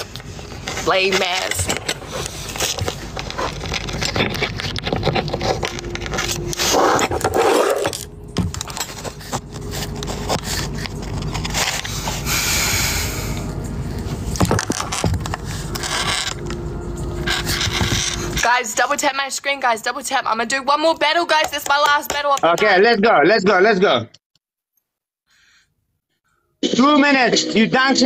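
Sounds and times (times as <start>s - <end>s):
phone scraping against microphone: 0.0s - 8.1s, 14.0s - 18.5s.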